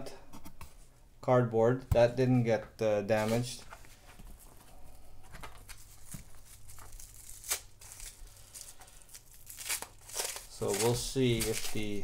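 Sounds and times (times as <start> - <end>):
cardboard tearing and rustling: 5.4 - 12.0.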